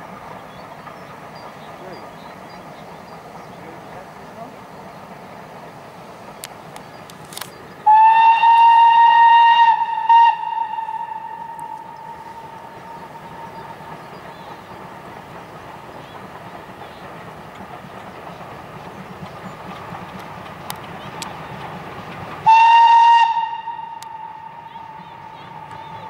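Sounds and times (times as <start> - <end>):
steam locomotive whistle: 7.8 - 13.3, 22.4 - 26.0.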